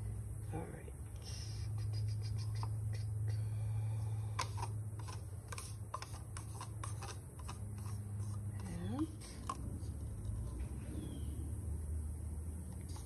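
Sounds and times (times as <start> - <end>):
steady low hum: 0.0 - 13.0
stick scraping plastic cup: 4.3 - 10.7.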